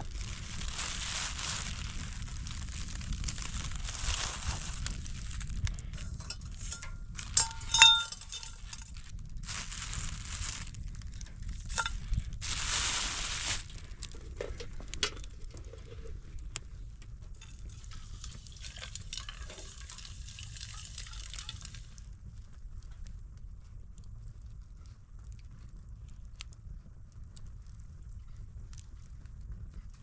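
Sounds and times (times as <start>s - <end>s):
plastic bag rustling: 0.0s - 10.8s, 11.5s - 16.1s
metal teapot lid clinking: 6.2s - 8.8s
water pouring into teapot: 17.7s - 22.0s.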